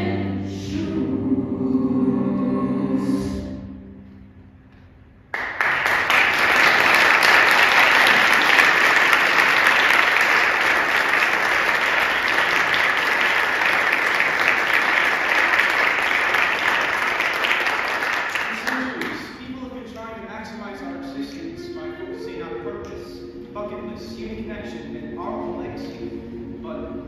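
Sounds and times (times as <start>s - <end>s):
choir singing chord: 0.0s - 4.7s, 20.4s - 27.0s
audience applause: 5.3s - 19.4s.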